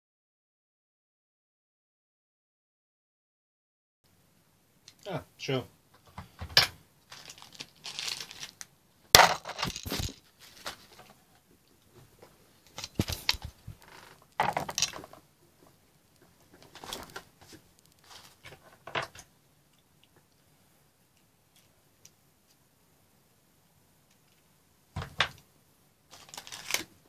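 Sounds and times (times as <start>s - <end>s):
crinkling and tearing: 7.1s - 8.7s, 9.3s - 11.1s, 26.1s - 27.0s.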